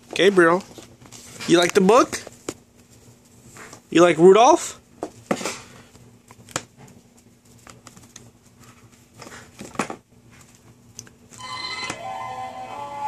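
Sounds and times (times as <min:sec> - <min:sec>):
book pages rustling: 0:00.1 - 0:03.8, 0:05.1 - 0:11.2.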